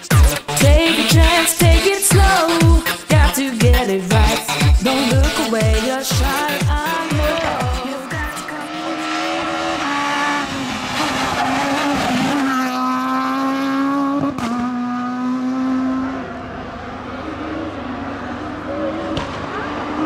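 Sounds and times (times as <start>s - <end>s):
rally car engine at high revs: 4.2s - 20.0s.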